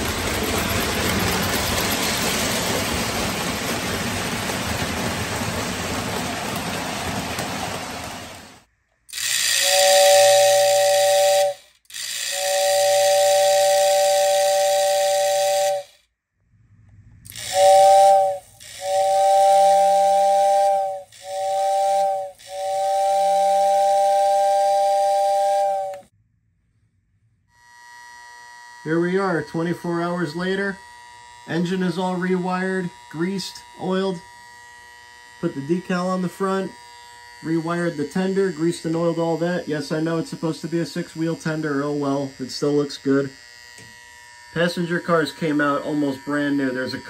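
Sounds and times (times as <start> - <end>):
model train rumbling on track: 0.0 - 11.6, 17.2 - 26.0
two-note toy train whistle: 9.2 - 16.1, 17.3 - 26.1.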